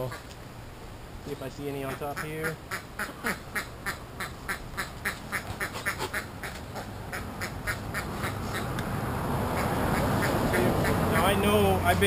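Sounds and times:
ducks quacking: 0:01.8 - 0:08.8, 0:09.5 - 0:11.6.

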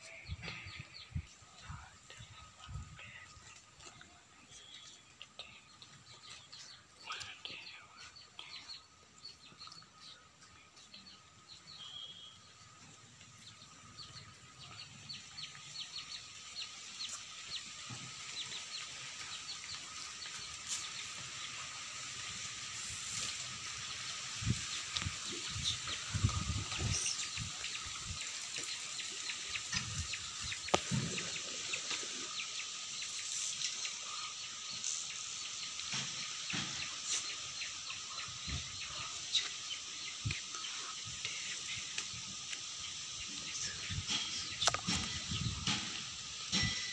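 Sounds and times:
high-pitched outdoor hiss: 0:00.0 - 0:46.9
chickens clucking: 0:14.0 - 0:46.9.

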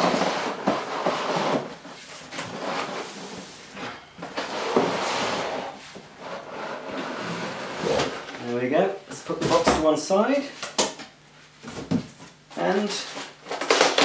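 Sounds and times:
cardboard scraping: 0:00.0 - 0:08.5
plastic wrapping rustling: 0:11.7 - 0:14.0.

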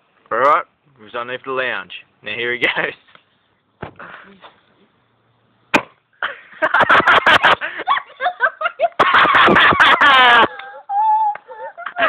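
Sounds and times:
sharp smack: 0:05.7 - 0:06.0
people shrieking and laughing: 0:06.7 - 0:12.0.

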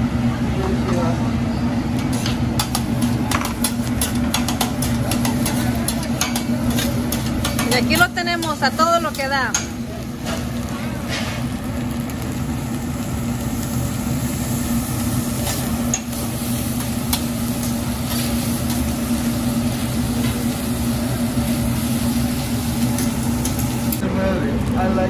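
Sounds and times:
rice sizzling on griddle: 0:02.0 - 0:25.0
spatulas stirring and chopping: 0:02.6 - 0:09.8.

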